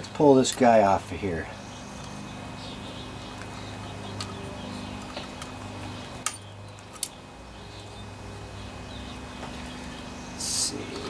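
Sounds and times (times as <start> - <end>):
steady low hum: 0.0 - 11.0
sharp metal clinks: 6.2 - 7.2.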